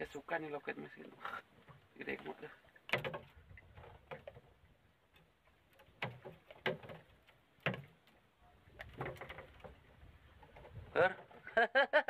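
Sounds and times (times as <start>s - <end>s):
fishing tackle clicks and knocks: 2.8s - 4.5s, 5.1s - 8.2s, 8.8s - 11.4s.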